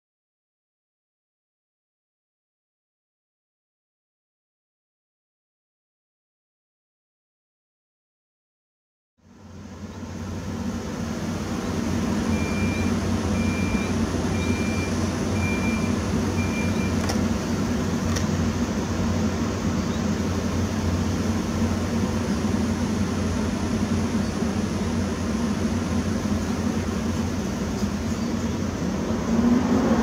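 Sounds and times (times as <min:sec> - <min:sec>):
locomotive machinery humming: 0:09.3 - 0:30.0
short high beeps: 0:12.3 - 0:17.0.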